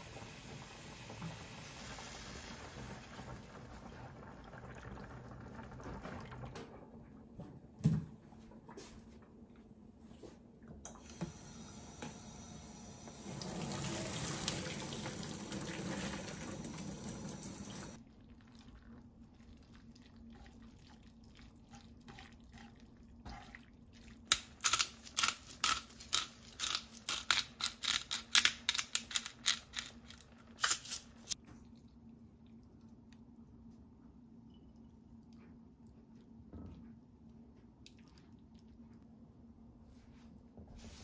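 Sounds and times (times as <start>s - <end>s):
water pouring into colander: 13.1s - 18.7s
wet squishing: 37.7s - 39.1s.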